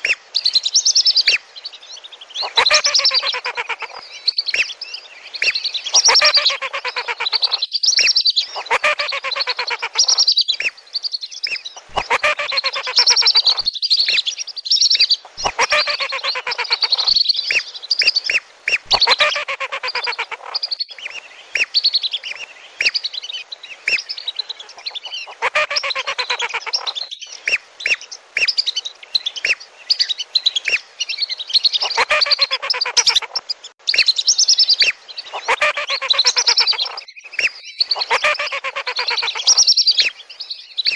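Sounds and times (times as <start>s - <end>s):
ducks whistling: 2.4s - 4.7s, 5.4s - 7.6s, 8.6s - 10.7s, 11.8s - 13.7s, 15.3s - 17.2s, 18.3s - 20.5s, 24.6s - 28.5s, 31.8s - 33.4s, 35.3s - 40.1s.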